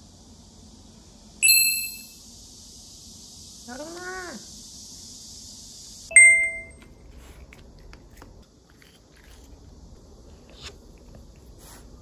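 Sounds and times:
bright bell-like chime: 1.4s - 2.2s, 6.1s - 6.7s
cat nibbling a treat: 6.8s - 9.8s.

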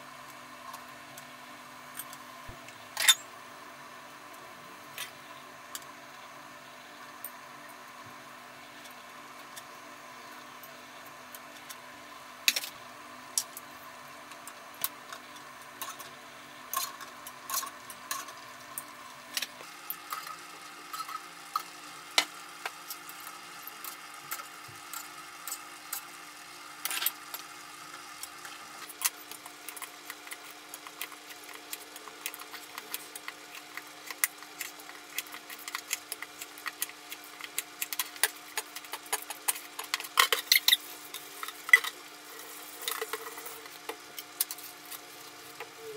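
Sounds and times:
utensils and pots clinking: 3.0s - 3.2s, 16.7s - 22.3s, 37.5s - 45.9s.

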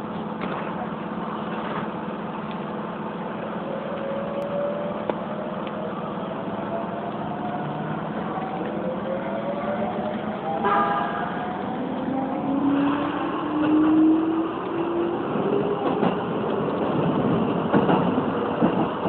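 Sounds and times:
wheels rumbling on track: 0.0s - 19.0s
train motor whine rising: 11.4s - 16.1s.

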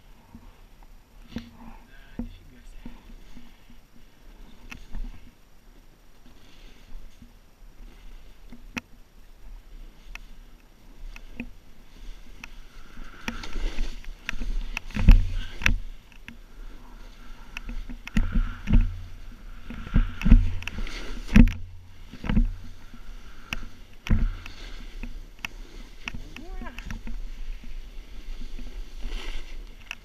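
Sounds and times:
snowboard swishing through snow: 6.1s - 8.5s, 9.2s - 29.8s
board thumping on bumps: 17.6s - 27.2s.

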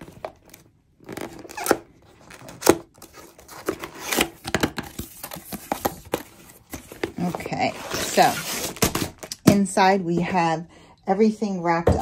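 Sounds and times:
paperboard box being opened: 0.0s - 9.3s.

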